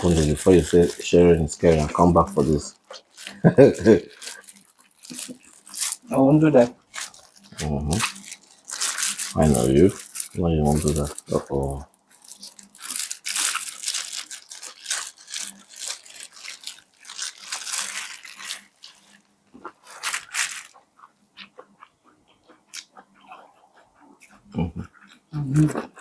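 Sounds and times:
corn kernels crunching: 0.0s - 26.0s
chewing clicks: 20.7s - 26.0s.

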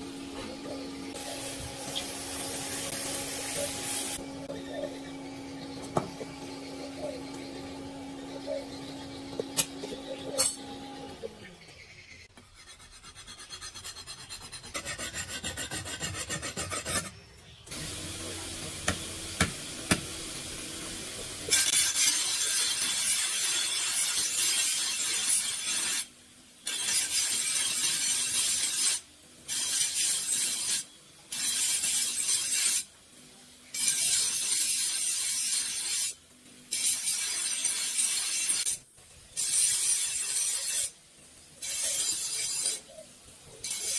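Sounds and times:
bench grinder grinding steel: 0.1s - 11.5s, 12.6s - 26.1s.

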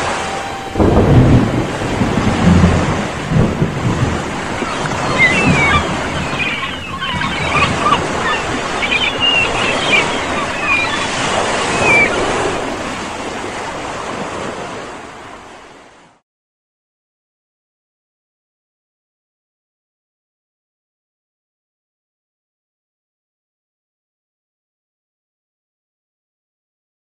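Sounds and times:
short high calls: 0.0s - 1.0s, 4.4s - 12.3s
ocean waves washing in: 0.0s - 16.2s.

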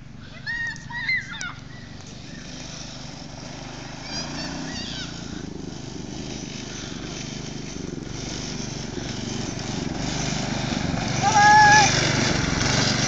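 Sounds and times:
go-kart engine running: 0.0s - 13.0s.

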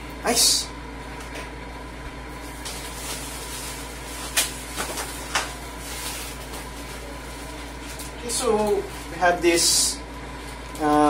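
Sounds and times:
steady background hum: 0.0s - 11.0s
plastic packaging rustling: 2.3s - 9.7s.

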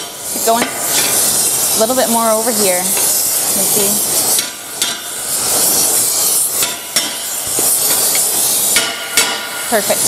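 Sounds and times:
gas torch flame hissing: 0.0s - 10.0s
hammer striking a metal punch: 4.4s - 5.1s, 6.6s - 9.6s.

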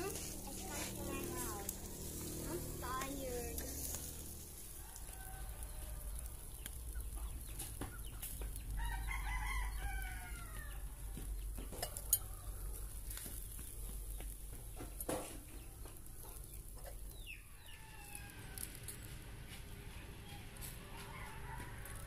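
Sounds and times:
rooster crowing: 4.6s - 6.4s, 8.8s - 10.9s, 12.0s - 13.0s, 17.4s - 19.1s, 20.2s - 22.0s.

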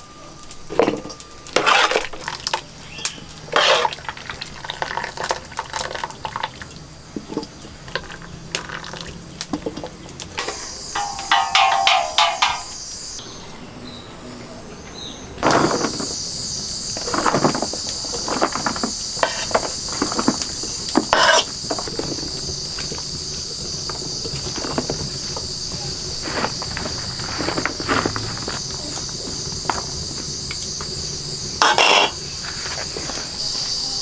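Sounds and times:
insects chirring: 0.0s - 34.0s
spoon clinking against bowl: 10.5s - 12.8s.

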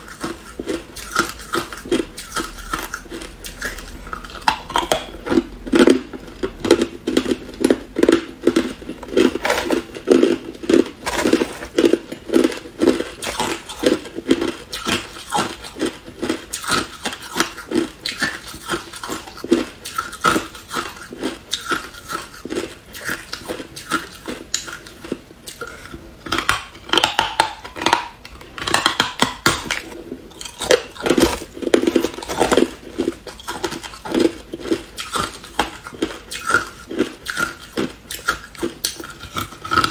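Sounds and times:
ice crunching being chewed: 0.0s - 39.9s.

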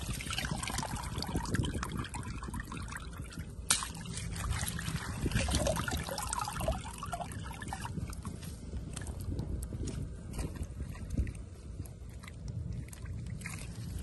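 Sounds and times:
shallow water trickling: 0.0s - 14.0s
small wet clicks: 8.0s - 14.0s.

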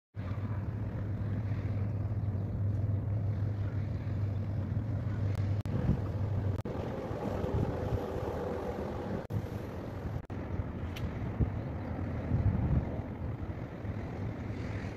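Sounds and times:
ship engine hum: 0.2s - 14.9s
wind rumbling on microphone: 0.2s - 14.9s.

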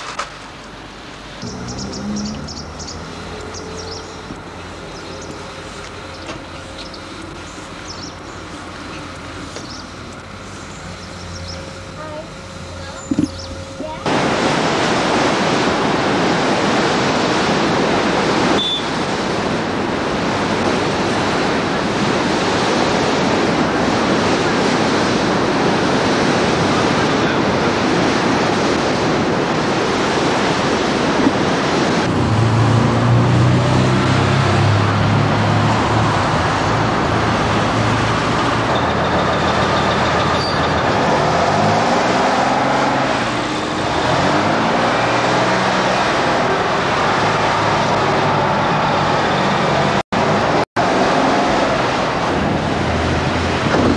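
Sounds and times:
road traffic: 0.0s - 53.9s
rough surf: 0.0s - 53.9s
wind: 0.0s - 53.9s
vehicle engine passing: 1.4s - 15.0s, 32.0s - 53.9s.

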